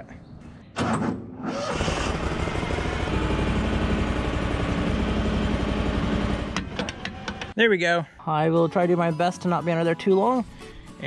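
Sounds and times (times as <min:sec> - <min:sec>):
backhoe engine running: 0:01.5 - 0:07.5.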